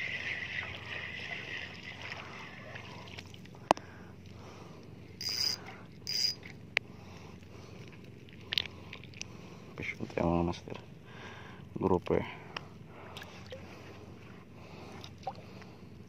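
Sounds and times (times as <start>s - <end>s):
water splashes: 0.0s - 3.6s
fishing reel whirring: 5.2s - 6.5s.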